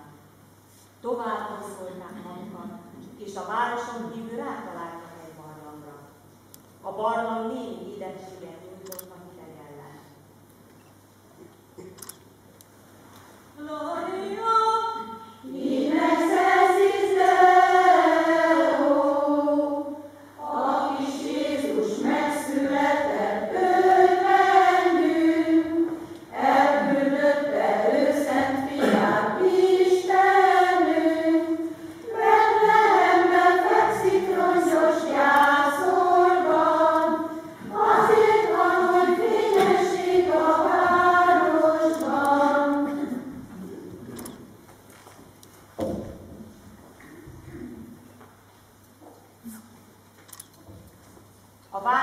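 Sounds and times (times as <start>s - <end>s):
women's and girls' choir singing: 13.6s - 43.4s.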